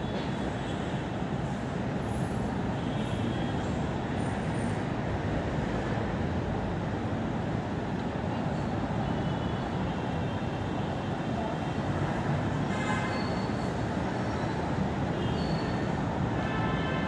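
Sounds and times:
metro station rumble: 0.0 - 2.7.

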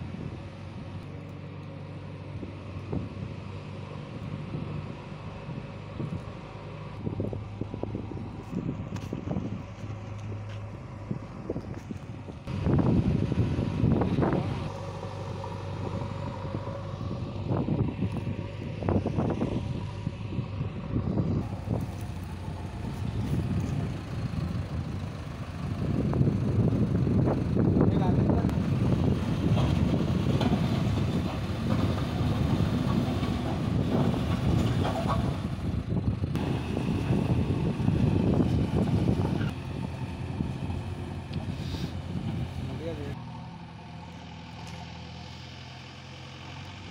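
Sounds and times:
wind noise on microphone: 0.0 - 1.0, 2.4 - 3.4, 7.0 - 15.0, 15.7 - 42.7
distant diesel engine running: 0.0 - 46.9.

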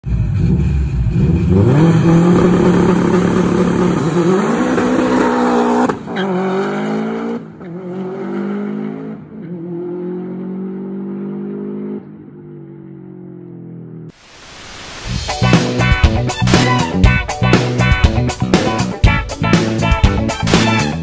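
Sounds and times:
car engine revving high: 0.2 - 12.1.

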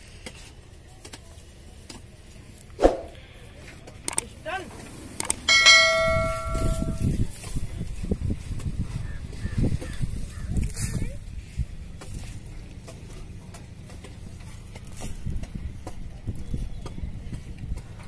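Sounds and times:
metal ringing like a bell: 5.5 - 7.2.

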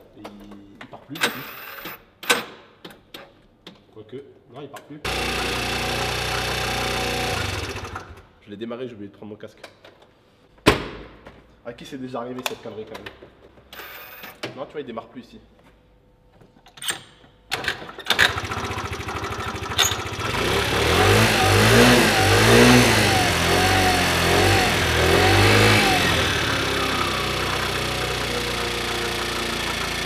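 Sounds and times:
scooter engine revving and idling: 5.1 - 8.2, 18.1 - 30.0
scooter kick-start knocks: 17.5 - 20.4.

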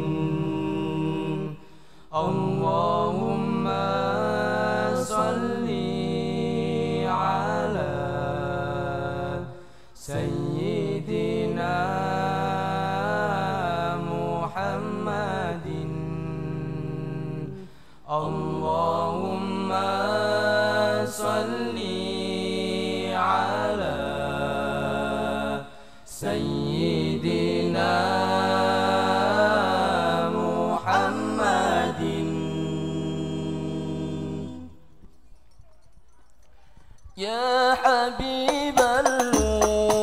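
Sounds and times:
lead male voice singing: 37.2 - 40.0.

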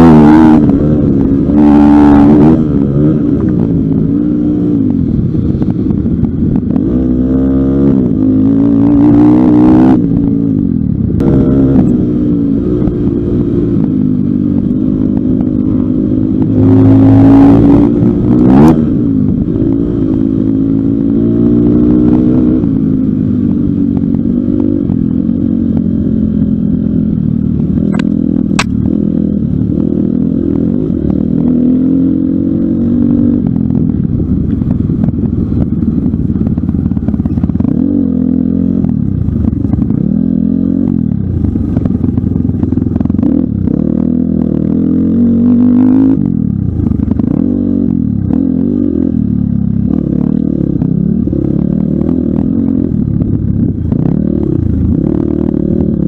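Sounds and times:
dirt bike engine revving: 0.0 - 4.9.

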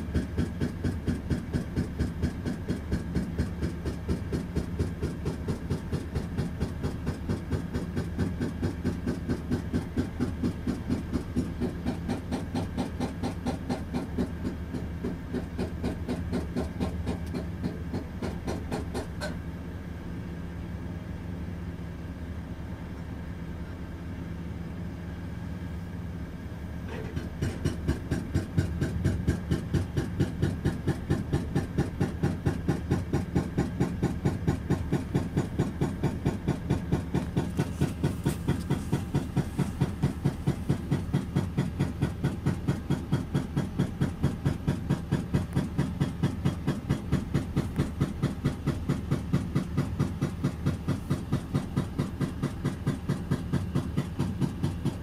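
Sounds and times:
diesel bus engine idling: 0.0 - 55.0.

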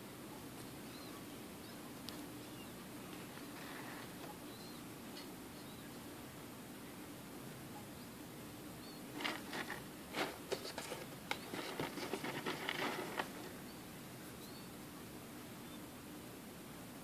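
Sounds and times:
wood pellets rustling and clicking: 9.2 - 13.5.

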